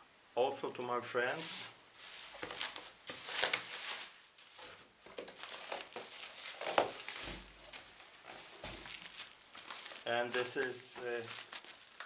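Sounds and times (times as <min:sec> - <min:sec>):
plastic bag crinkling: 0:01.4 - 0:12.0.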